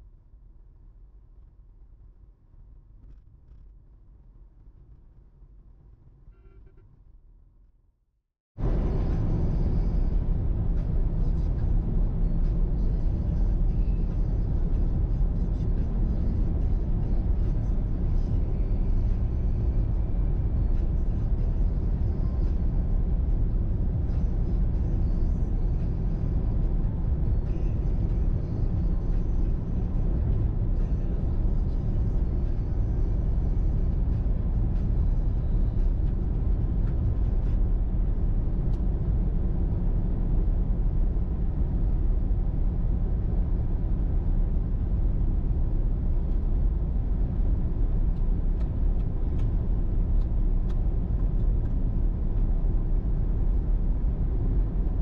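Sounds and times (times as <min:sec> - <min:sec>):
car engine and road noise rumble: 0:00.0 - 0:07.7, 0:08.5 - 0:55.0.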